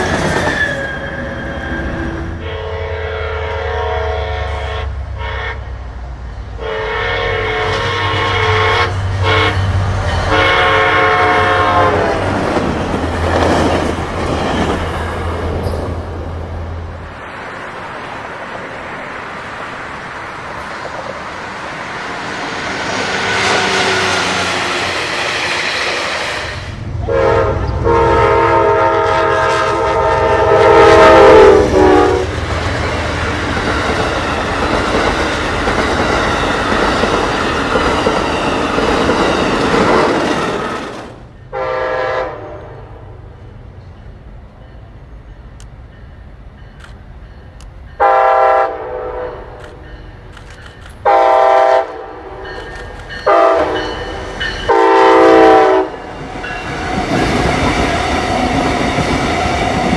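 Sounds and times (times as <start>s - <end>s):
train running noise: 0.0s - 59.9s
locomotive air horn blasts: 0.6s - 5.8s, 6.6s - 12.3s, 26.5s - 32.4s, 41.5s - 42.9s, 48.0s - 49.6s, 51.0s - 52.5s, 53.3s - 54.0s, 54.7s - 56.1s
train wheels clattering on rails: 11.2s - 16.2s, 32.3s - 41.5s, 52.4s - 55.0s.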